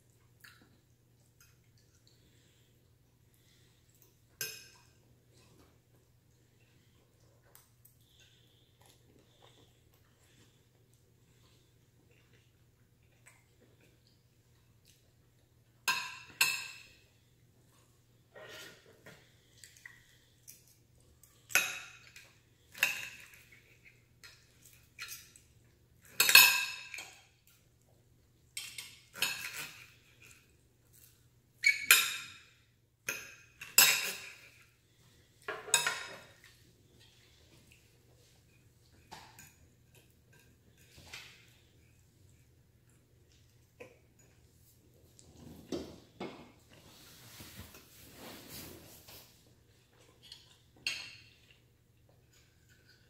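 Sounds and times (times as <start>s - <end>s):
cutlery scraping and clinking plate: 21.5s - 24.0s, 26.0s - 27.2s, 28.6s - 30.4s, 33.1s - 34.7s, 35.4s - 36.5s, 50.2s - 51.6s.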